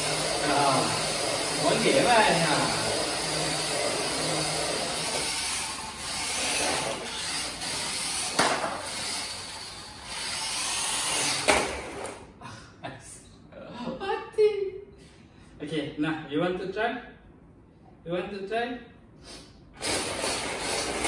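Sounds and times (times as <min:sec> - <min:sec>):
toy truck motor whirring: 0:00.0 - 0:12.2, 0:19.8 - 0:21.0.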